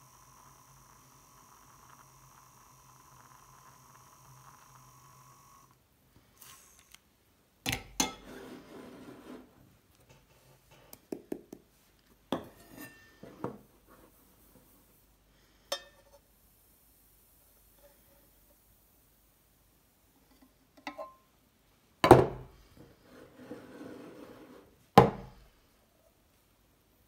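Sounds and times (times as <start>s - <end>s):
milk frother whirring: 0.0s - 7.0s.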